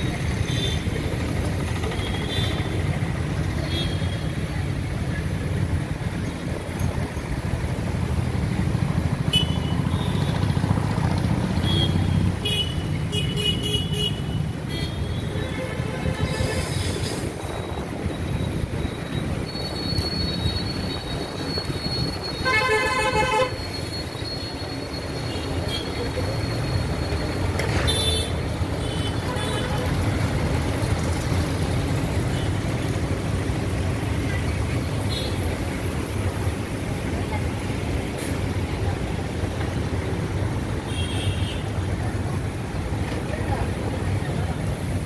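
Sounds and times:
traffic engines rumbling: 0.0s - 45.0s
vehicle horns honking: 22.3s - 23.8s.

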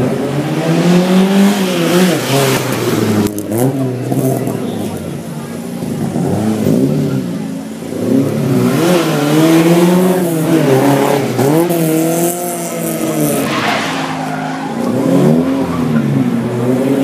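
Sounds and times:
car engine revving: 0.0s - 17.0s
tyres squealing and skidding: 12.6s - 16.4s.

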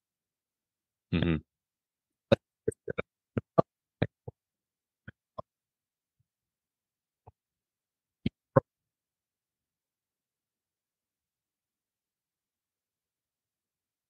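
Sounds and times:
voice cutting out on video call: 1.1s - 1.4s.

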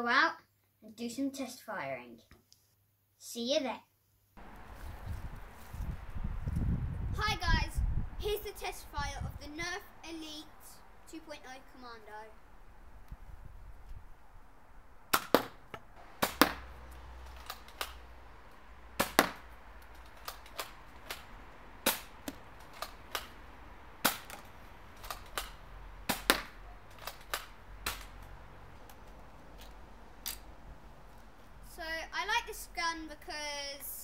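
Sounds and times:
toy blaster plastic clacks: 17.3s - 18.0s, 24.1s - 25.6s, 26.2s - 28.1s.

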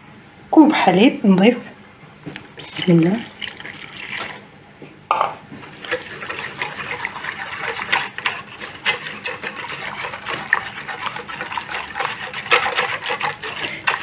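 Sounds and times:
whisk clicking against saucepan: 5.8s - 14.0s.

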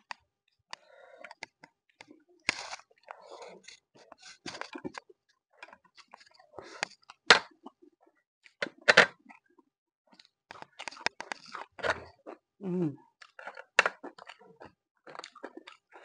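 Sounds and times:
noodles being chewed: 10.1s - 12.5s, 13.1s - 16.0s.

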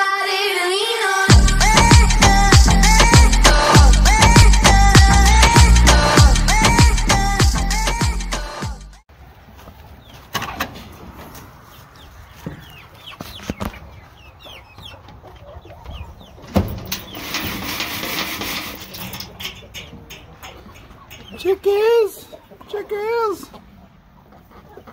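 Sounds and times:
chickens clucking: 9.3s - 24.9s.

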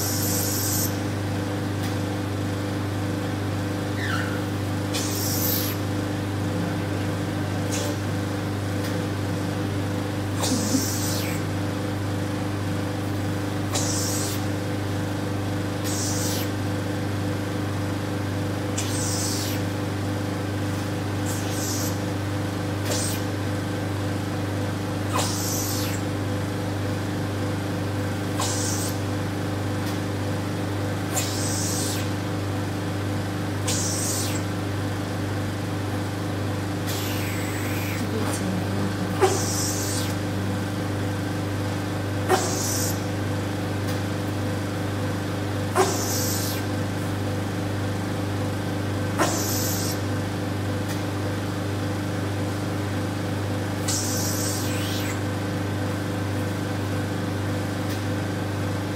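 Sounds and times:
machine humming: 0.0s - 50.7s
vacuum suction air hiss: 28.4s - 29.1s, 39.2s - 40.9s.

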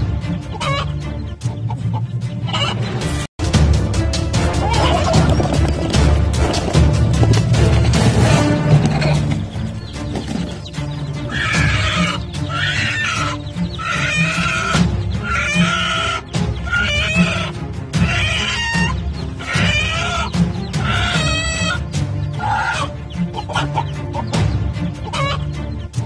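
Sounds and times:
hen squawking: 0.4s - 2.9s, 8.9s - 25.6s.

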